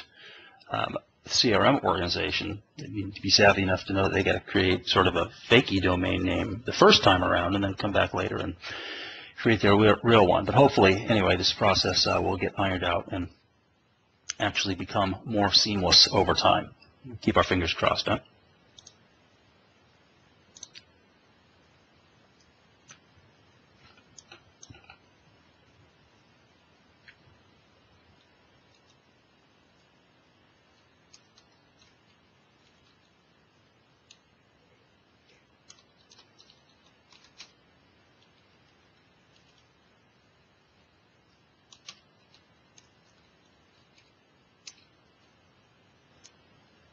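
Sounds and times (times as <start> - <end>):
faint clicks: 20.5 - 20.9.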